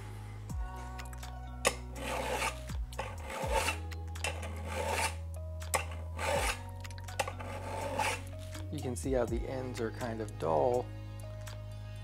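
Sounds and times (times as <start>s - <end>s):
file rasping on steel: 1.7s - 8.4s.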